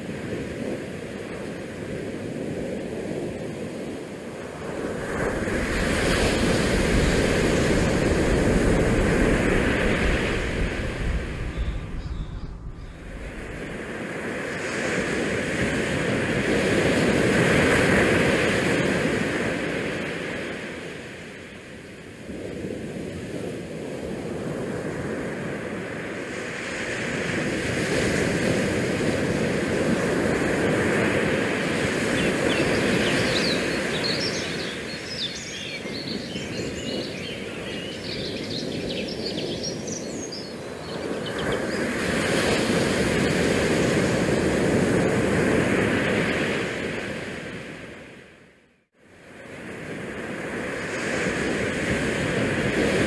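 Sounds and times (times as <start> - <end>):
wind: 0.0 - 53.0.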